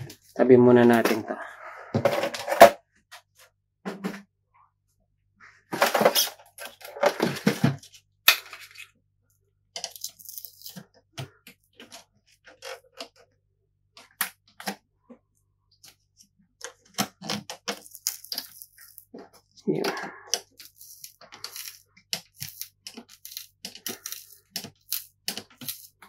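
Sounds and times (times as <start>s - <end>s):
plastic parts clattering: 2.0s - 2.8s, 5.7s - 9.0s, 16.6s - 26.0s
metal pick clicking and scraping plastic: 16.6s - 19.3s, 20.3s - 26.0s.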